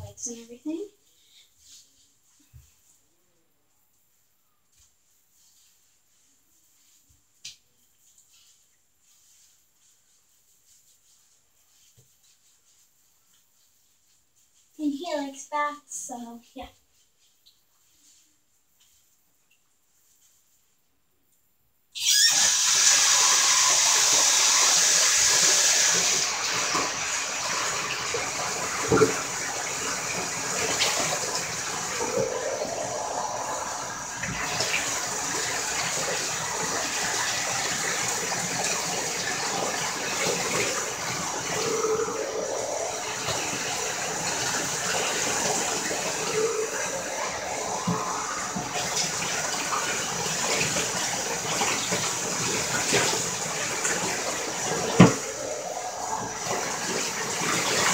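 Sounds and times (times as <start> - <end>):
shower water running: 0.0 - 3.0, 4.2 - 20.7, 22.0 - 57.9.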